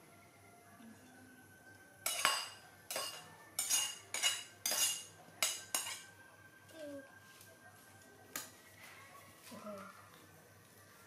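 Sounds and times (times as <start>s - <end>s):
metal ladle clinking on pot: 2.0s - 6.1s.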